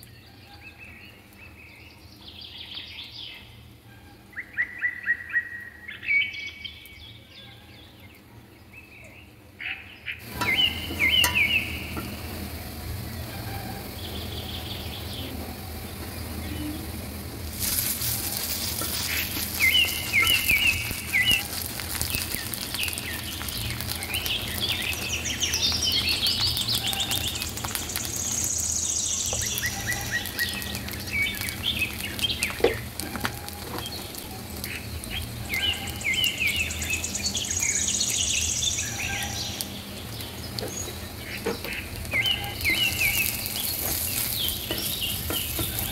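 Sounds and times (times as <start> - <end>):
onions frying in oil: 0.0 - 3.8, 10.1 - 45.9
birds chirping: 0.0 - 45.9
low hum: 10.2 - 45.9.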